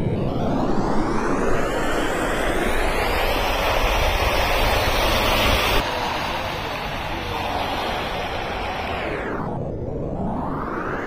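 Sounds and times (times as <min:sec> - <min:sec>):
traffic noise: 0:03.2 - 0:09.2.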